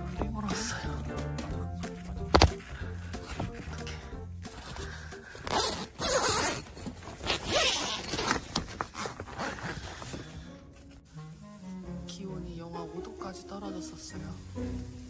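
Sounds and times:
plastic window crinkling: 0:02.2 - 0:11.1.

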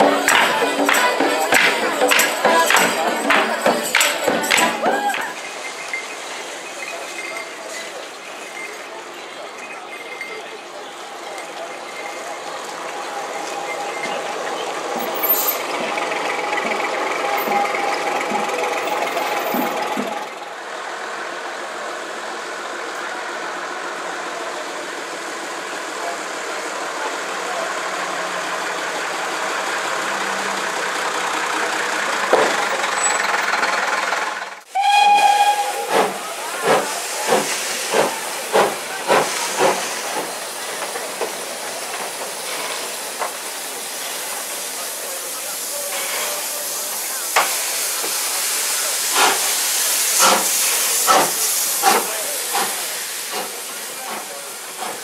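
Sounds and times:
bus engine running: 0:00.0 - 0:55.0
steam hissing: 0:00.0 - 0:55.0
locomotive exhaust chuffs: 0:10.3 - 0:55.0
steam locomotive whistle: 0:34.7 - 0:39.9.

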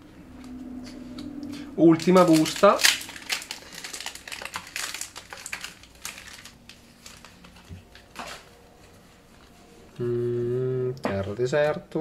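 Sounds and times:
foil card pack rustling: 0:01.9 - 0:08.9.

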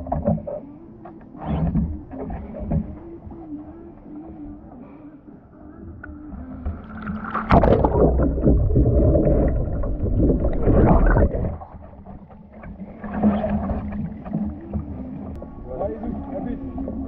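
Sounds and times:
underwater rushing and gurgling: 0:06.3 - 0:17.0
kayak splashing: 0:06.6 - 0:15.3.

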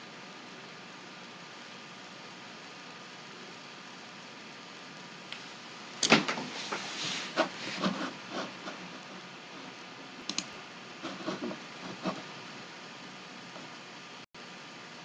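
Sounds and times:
steady hiss: 0:00.0 - 0:15.0
computer keyboard clicking: 0:10.2 - 0:10.5.

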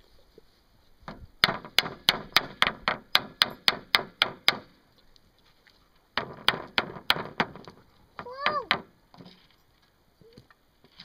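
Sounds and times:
wooden stick hitting board: 0:01.1 - 0:04.7, 0:06.2 - 0:09.4.

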